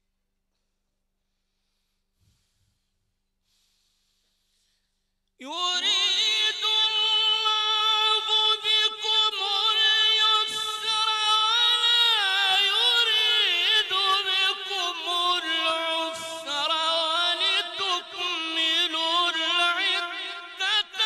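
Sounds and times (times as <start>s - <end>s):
man reciting melodically: 5.4s - 21.0s.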